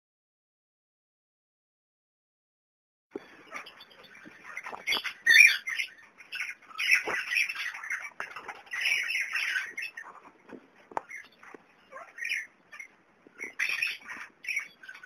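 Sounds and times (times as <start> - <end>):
parakeets chattering and squawking: 3.2 - 15.0.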